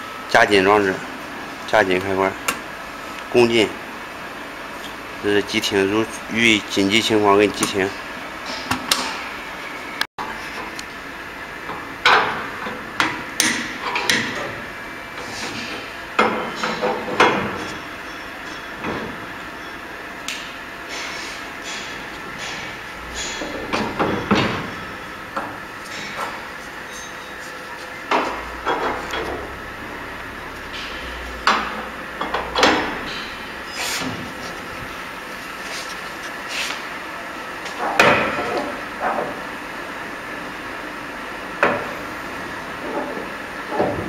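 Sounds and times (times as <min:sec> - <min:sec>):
low hum: 0:17.6 - 0:36.2
saw lever clanks and knocks: 0:20.3 - 0:27.2.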